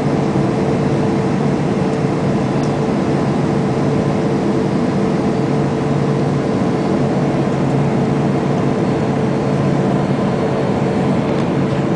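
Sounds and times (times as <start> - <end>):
jet engine and airflow roar: 0.0 - 11.9.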